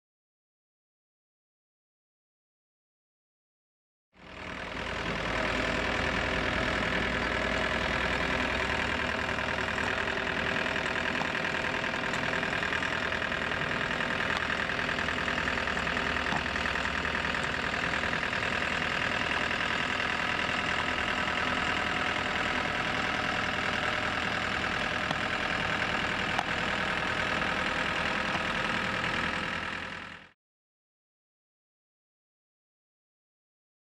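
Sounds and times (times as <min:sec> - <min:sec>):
drill rig engine running: 0:04.2 - 0:30.4.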